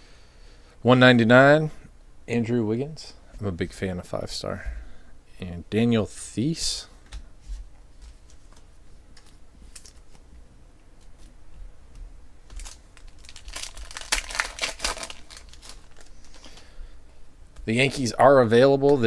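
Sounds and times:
foil wrappers crinkling: 0:08.2 - 0:10.2, 0:12.4 - 0:16.8.

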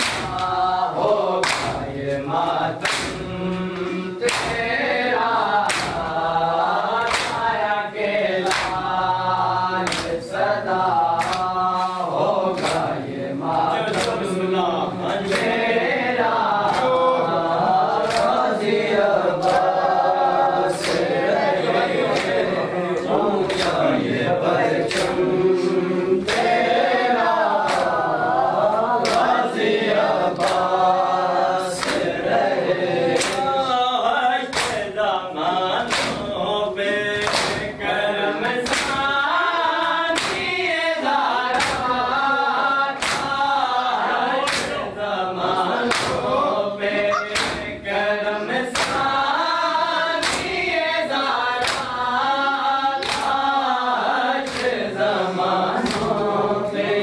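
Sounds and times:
hands slapping chests: 0:00.0 - 0:04.8, 0:05.5 - 0:06.3, 0:07.0 - 0:07.6, 0:08.4 - 0:08.9, 0:09.8 - 0:13.0, 0:13.9 - 0:14.3, 0:15.1 - 0:15.6, 0:16.6 - 0:17.2, 0:17.9 - 0:18.6, 0:19.3 - 0:20.0, 0:20.8 - 0:21.3, 0:22.0 - 0:22.6, 0:23.4 - 0:24.1, 0:24.8 - 0:26.8, 0:27.5 - 0:28.1, 0:29.0 - 0:29.4, 0:30.4 - 0:30.8, 0:31.8 - 0:32.2, 0:33.1 - 0:33.7, 0:34.5 - 0:34.9, 0:35.8 - 0:36.4, 0:37.2 - 0:37.8, 0:38.4 - 0:39.1, 0:40.2 - 0:40.6, 0:41.5 - 0:42.0, 0:43.0 - 0:43.4, 0:44.4 - 0:44.9, 0:45.8 - 0:46.3, 0:47.1 - 0:47.8, 0:48.7 - 0:49.1, 0:50.2 - 0:50.6, 0:51.6 - 0:52.0, 0:53.0 - 0:53.4, 0:54.3 - 0:54.9, 0:55.7 - 0:56.2
men chanting in unison: 0:00.0 - 0:57.0.

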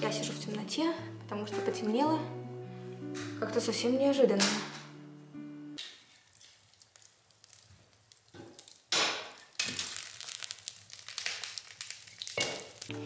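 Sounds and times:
wood fire crackling: 0:05.8 - 0:13.0.

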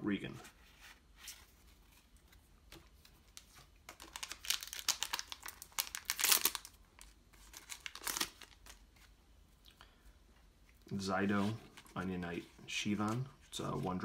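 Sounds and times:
foil wrapper crinkling: 0:03.9 - 0:08.9.

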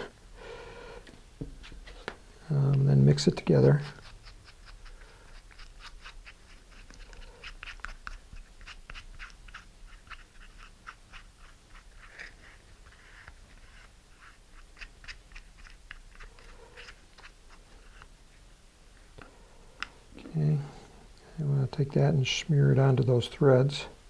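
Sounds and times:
stick mixing glue in paper cup: 0:02.6 - 0:18.1.

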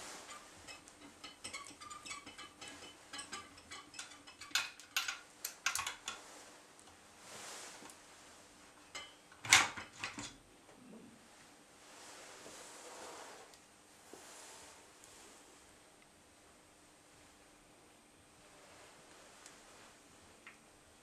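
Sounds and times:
metal parts clicking and clinking: 0:00.2 - 0:06.2.

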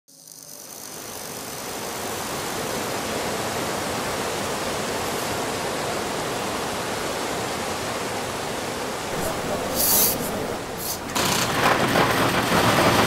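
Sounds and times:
steady rushing noise: 0:09.0 - 0:12.6.

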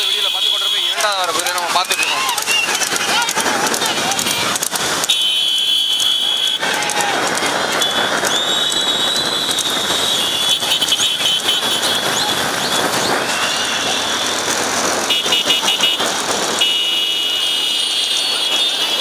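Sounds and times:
vehicles rushing past: 0:00.0 - 0:19.0.

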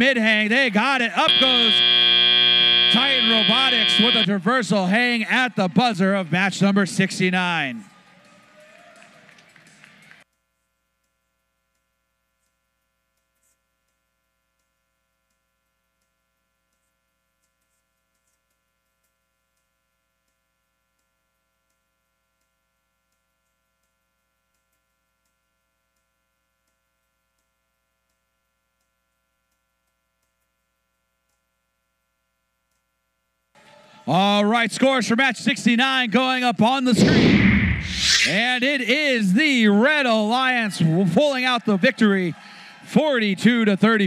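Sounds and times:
faint electrical hum: 0:01.2 - 0:04.3
loud noise: 0:01.2 - 0:04.3, 0:36.8 - 0:38.8
faint ticks: 0:10.3 - 0:31.6.

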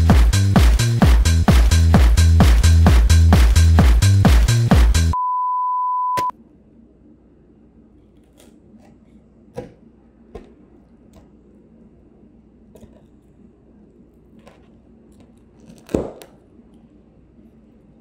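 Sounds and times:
electronic dance music: 0:00.0 - 0:05.2
high beep tone: 0:05.2 - 0:06.3.

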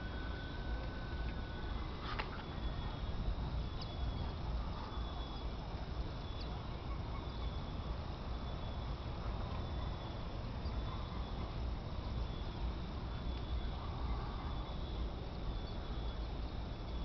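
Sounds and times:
faint high-pitched tones: 0:00.0 - 0:17.0.

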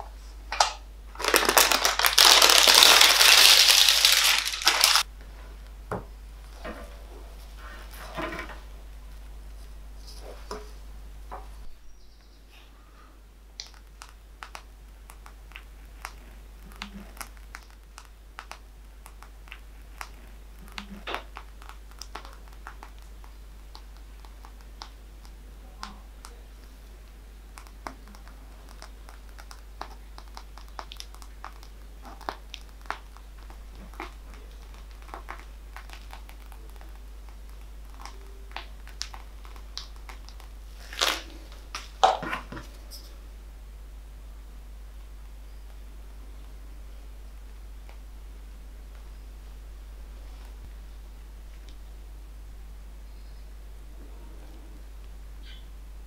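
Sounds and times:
piping bag crinkling: 0:01.0 - 0:05.1, 0:13.5 - 0:43.1.

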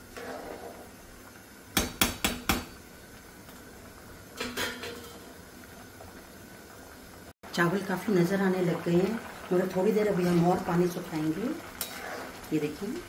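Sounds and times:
metal spoon tapping metal pan: 0:01.8 - 0:02.8.

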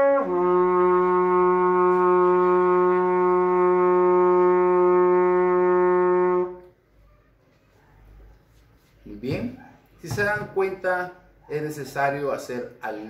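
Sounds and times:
trumpet holding a low note: 0:00.0 - 0:06.7.

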